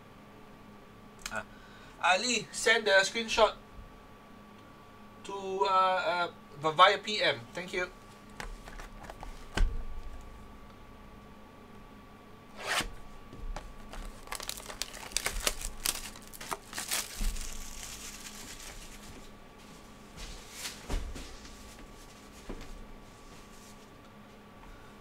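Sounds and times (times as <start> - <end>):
plastic wrap tearing and crinkling: 13.7 - 19.3.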